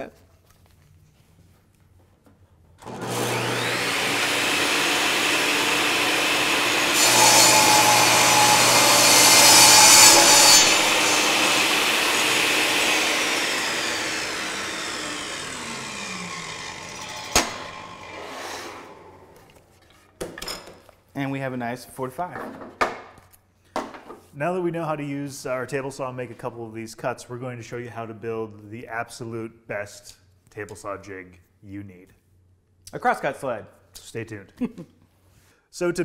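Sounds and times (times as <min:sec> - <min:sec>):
table saw motor whining: 0:02.8 - 0:19.4
table saw cutting board: 0:02.8 - 0:19.6.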